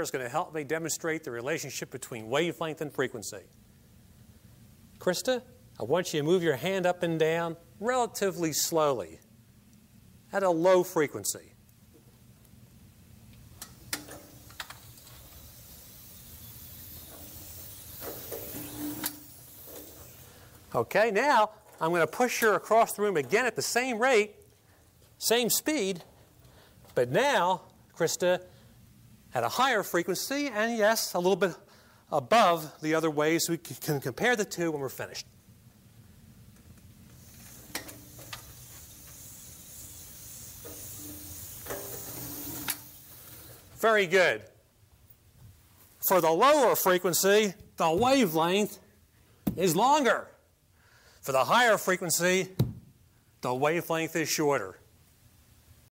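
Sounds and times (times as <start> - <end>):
cart rolling across floor: 40.6 - 43.6.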